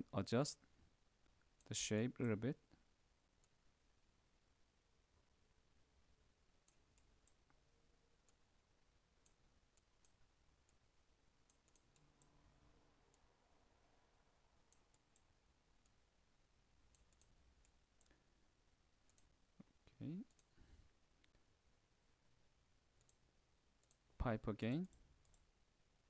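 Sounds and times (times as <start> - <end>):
computer mouse clicks: 6.6 - 7.6, 9.2 - 10.8, 11.4 - 12.4, 14.7 - 16.0, 16.9 - 18.2, 19.0 - 20.6, 23.0 - 23.2, 23.8 - 24.1, 24.8 - 25.5.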